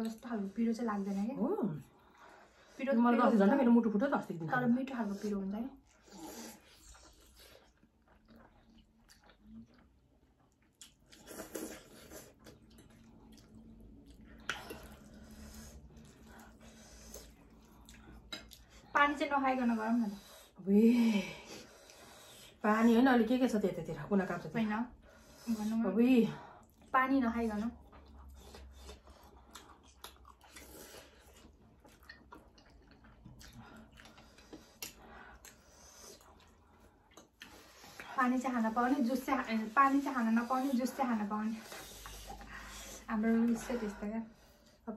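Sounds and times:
chewing noodles: 5.8s - 18.9s, 26.4s - 44.8s.

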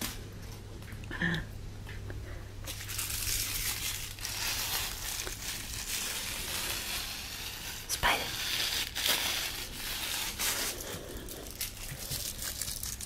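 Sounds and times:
steady low hum: 0.0s - 13.0s
mylar ball toy crinkling: 2.7s - 13.0s.

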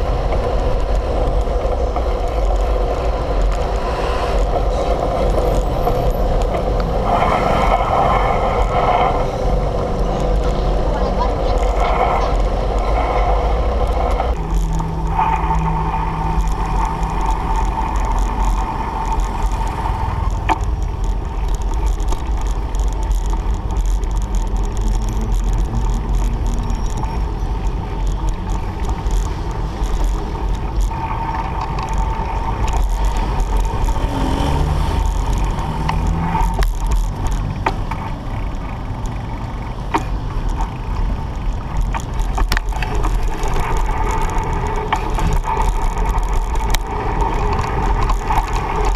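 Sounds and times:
passing motor traffic whine: 0.0s - 48.9s
wind buffeting microphone: 0.0s - 48.9s.

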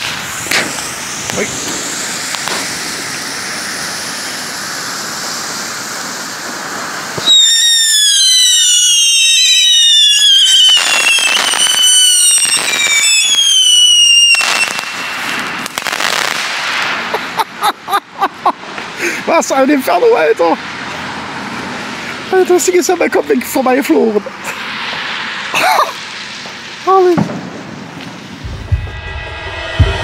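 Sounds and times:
falling firework whistles: 0.0s - 17.4s
firework bangs: 0.0s - 19.0s, 24.2s - 30.0s
firework fountains hissing: 0.0s - 28.8s
firework crackling: 0.0s - 30.0s.

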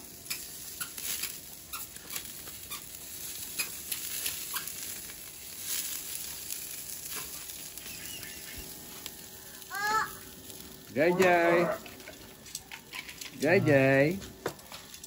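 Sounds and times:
fat crackling and popping: 0.0s - 15.0s
meat sizzling on a grill: 0.0s - 15.0s.

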